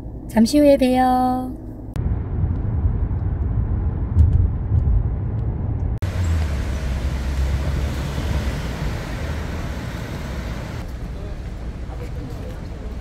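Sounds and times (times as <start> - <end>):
engine rumble: 1.4 - 13.0
road rumble inside car: 1.5 - 13.0
passing vehicles hiss: 6.0 - 13.0.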